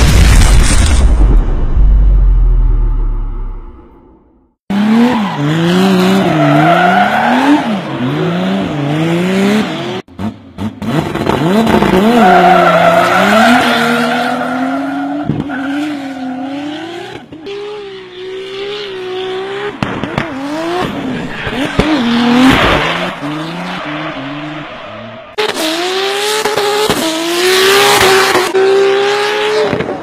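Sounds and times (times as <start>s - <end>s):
low boom: 0.0s - 4.6s
car engine revving: 16.5s - 29.9s.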